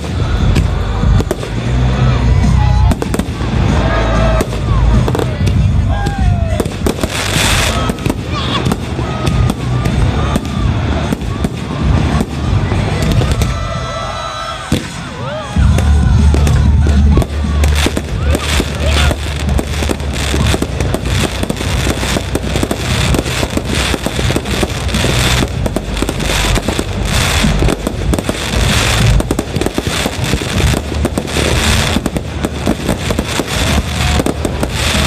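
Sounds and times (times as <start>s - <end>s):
crackling firework stars: 0.0s - 35.0s.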